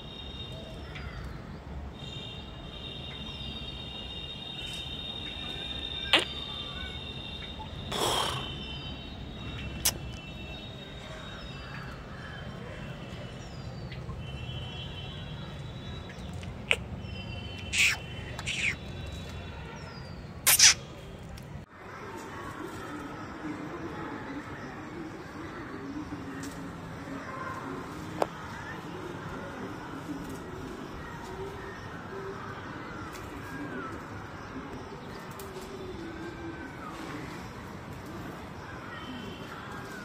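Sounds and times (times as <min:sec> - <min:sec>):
faint bird chirps: 0:02.0 - 0:11.9, 0:15.7 - 0:19.9
birds whistling and chirping: 0:16.0 - 0:19.9, 0:20.5 - 0:20.9.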